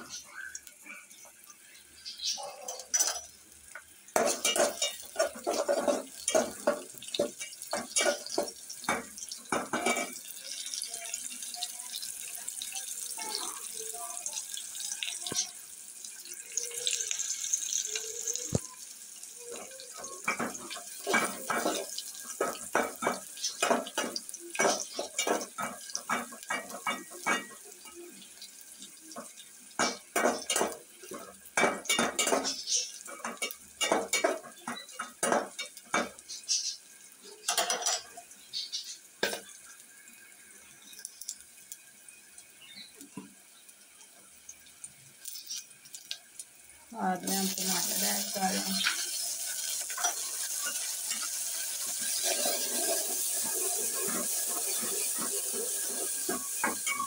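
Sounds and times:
oil sizzling: 0.0 - 57.0.

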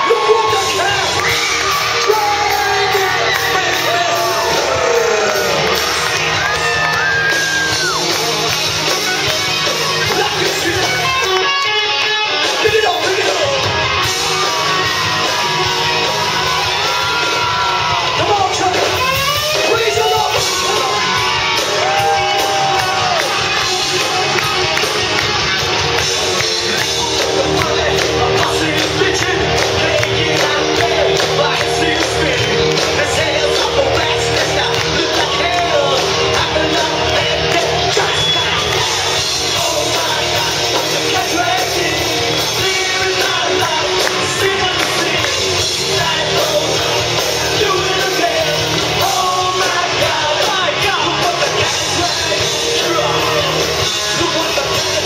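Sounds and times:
man singing and shouting: 0.0 - 6.0, 9.8 - 24.2, 26.4 - 55.0
electric guitars: 0.0 - 55.0
rock band playing: 0.0 - 55.0.

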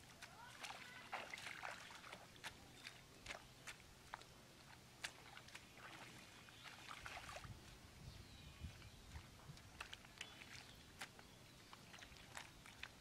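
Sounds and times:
wet mud squelching: 0.0 - 7.9, 8.5 - 13.0.

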